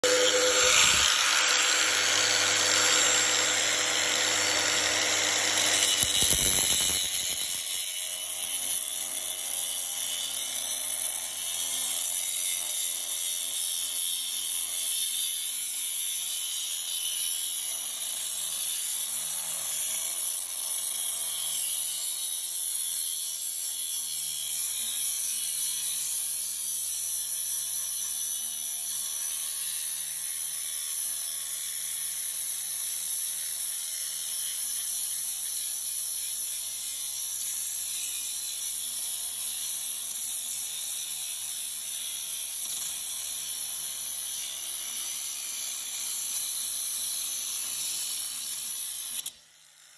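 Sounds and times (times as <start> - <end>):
angle grinder cutting metal: 0.0 - 49.9.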